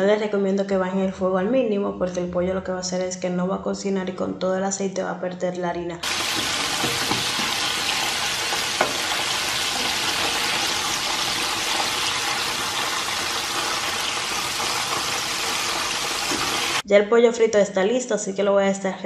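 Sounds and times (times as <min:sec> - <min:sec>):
oil sizzling while deep-frying: 0:06.0 - 0:16.8.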